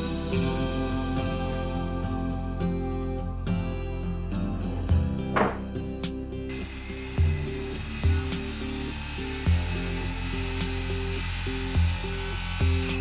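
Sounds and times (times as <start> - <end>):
background music with low bass: 0.0 - 13.0
circular saw cutting wood: 6.5 - 13.0.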